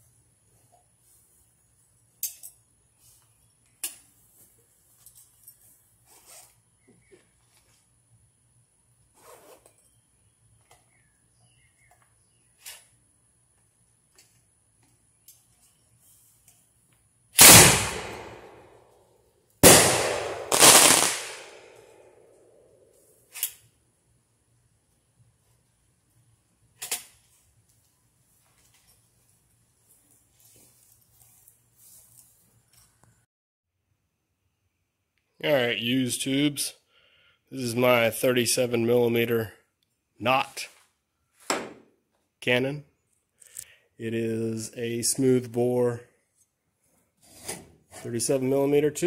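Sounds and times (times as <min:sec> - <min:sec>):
metallic clicks of rifle handling: 0:02.1 - 0:02.6, 0:26.8 - 0:27.2
firework mortar bangs: 0:19.6 - 0:21.8.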